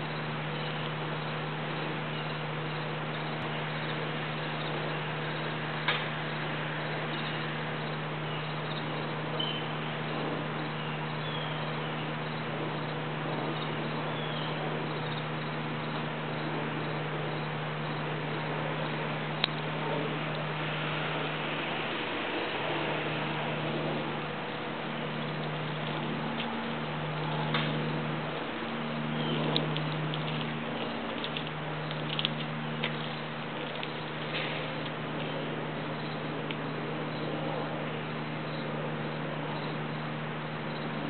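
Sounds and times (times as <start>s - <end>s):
low hum: 0.0s - 41.0s
outdoor background hiss: 0.0s - 41.0s
sharp clicks: 29.5s - 35.4s.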